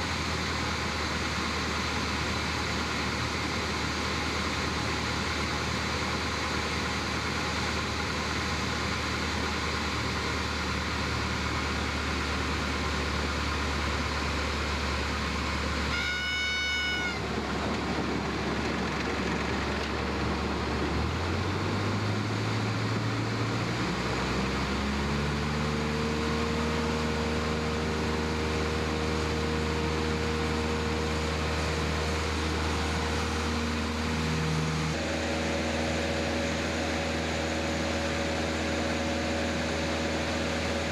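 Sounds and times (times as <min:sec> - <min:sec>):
light aircraft engine: 0:00.0 - 0:40.9
brief high tone: 0:15.9 - 0:17.3.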